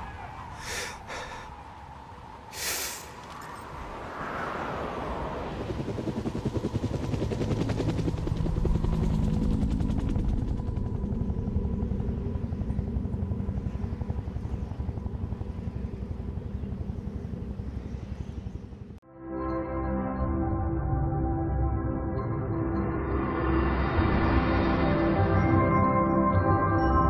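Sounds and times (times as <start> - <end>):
helicopter rotor chopping: 5.2 - 17.7.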